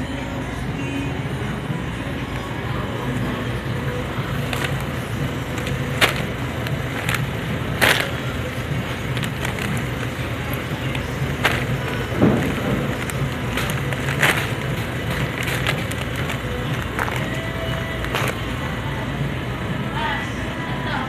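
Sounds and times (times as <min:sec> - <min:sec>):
store background hum: 0:00.0 - 0:21.0
plastic packs crinkling: 0:02.3 - 0:18.8.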